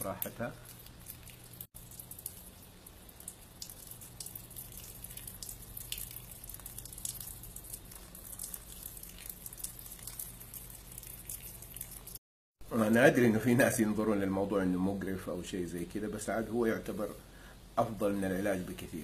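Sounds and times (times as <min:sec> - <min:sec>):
water dripping: 0:00.0 - 0:12.2.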